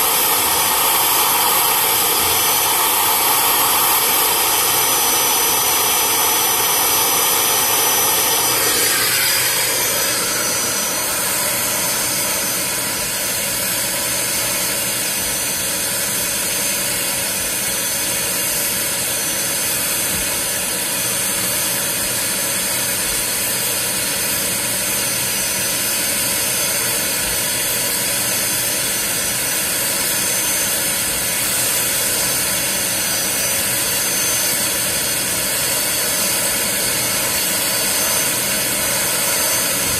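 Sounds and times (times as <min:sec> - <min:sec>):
carpet extractor suction whoosh: 0:00.0 - 0:18.2, 0:28.5 - 0:39.9.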